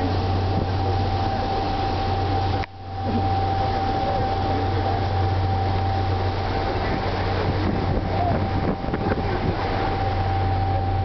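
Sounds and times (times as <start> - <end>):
boat engine drone: 0.0 - 11.0
wind and water noise: 0.0 - 11.0.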